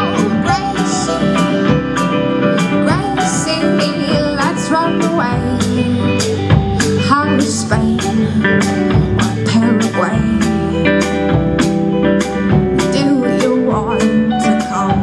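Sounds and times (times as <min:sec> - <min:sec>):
drum kit beat: 0:00.0 - 0:15.0
electric guitars: 0:00.0 - 0:15.0.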